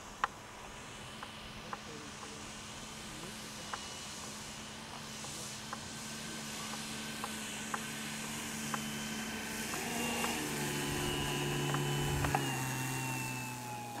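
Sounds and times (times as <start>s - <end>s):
model plane motor whining: 0.1s - 14.0s.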